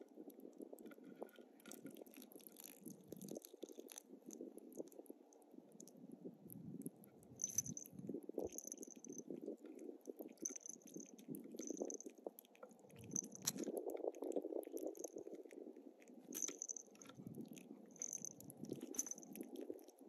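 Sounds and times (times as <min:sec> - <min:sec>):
cat chewing and biting: 0:01.7 - 0:05.0, 0:09.8 - 0:20.0.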